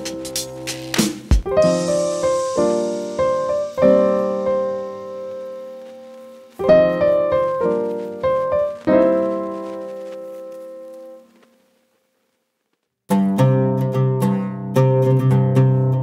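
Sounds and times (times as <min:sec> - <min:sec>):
slow instrumental melody: 0:00.0 - 0:11.5.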